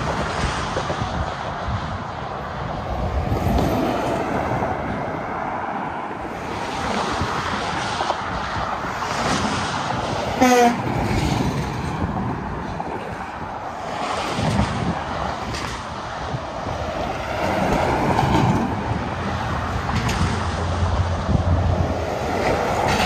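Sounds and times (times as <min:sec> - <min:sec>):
highway traffic passing: 0:00.0 - 0:23.0
truck horn honk: 0:10.4 - 0:10.9.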